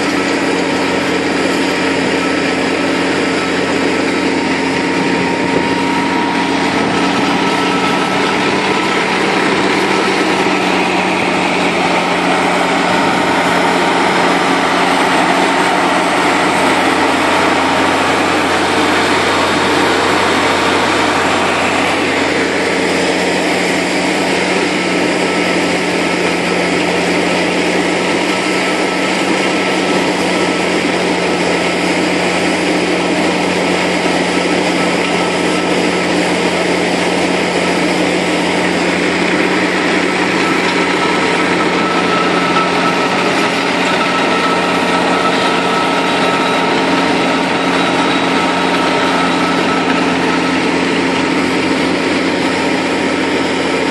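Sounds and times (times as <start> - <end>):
slurry mixer whine: 0.0 - 53.9
tractor engine running under load: 0.0 - 53.9.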